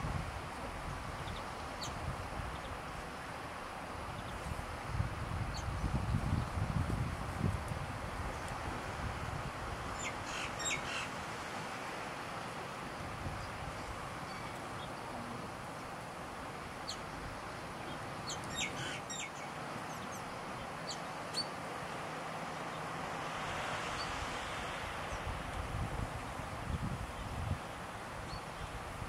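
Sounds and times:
steady outdoor hiss: 0.0s - 29.0s.

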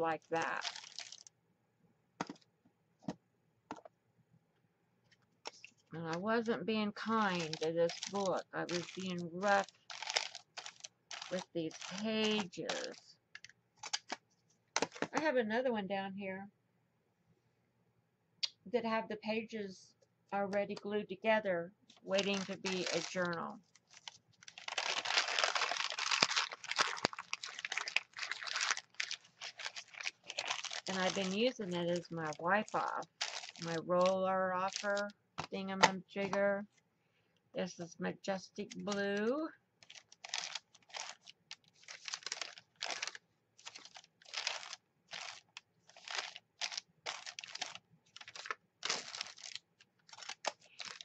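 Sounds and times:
paper crackling and rustling: 0.3s - 1.3s, 5.5s - 14.2s, 21.9s - 35.9s, 39.8s - 51.0s.

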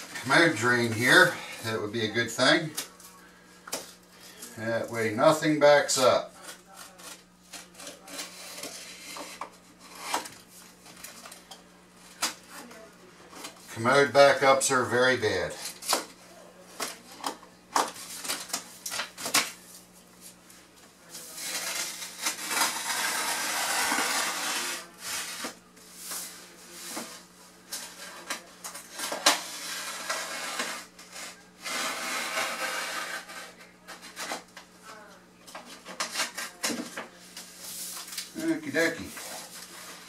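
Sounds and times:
sheet rustling and scraping: 36.0s - 40.0s.

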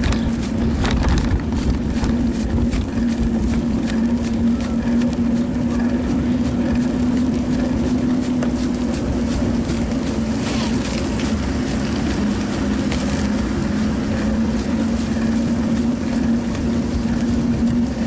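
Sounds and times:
bicycle rolling on pavement: 0.0s - 18.0s
small clicks and rattles: 0.0s - 18.0s.

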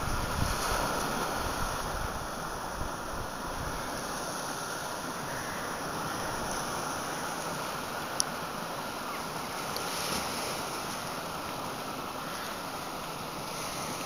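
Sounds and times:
low wind rumble: 0.0s - 7.2s
sea surf rushing: 0.0s - 14.0s.

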